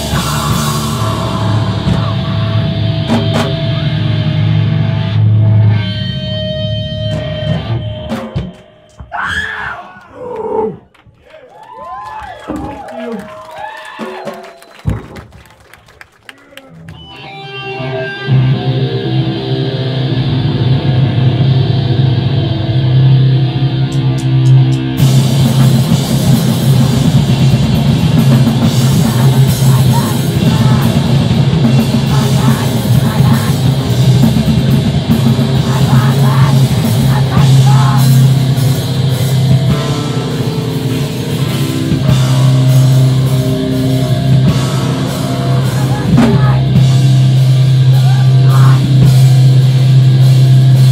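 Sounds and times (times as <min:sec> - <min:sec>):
screamed vocals: 0:00.0 - 0:03.0, 0:09.1 - 0:14.7, 0:28.8 - 0:34.2, 0:35.6 - 0:38.4, 0:43.9 - 0:46.9, 0:47.8 - 0:49.1
held low guitar and bass note: 0:00.0 - 0:08.0, 0:17.0 - 0:50.9
drums: 0:00.0 - 0:50.9.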